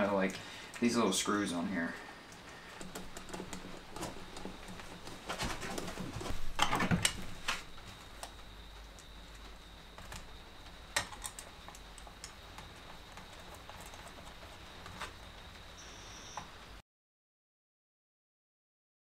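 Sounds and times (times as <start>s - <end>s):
faint steady hum: 0.0s - 16.8s.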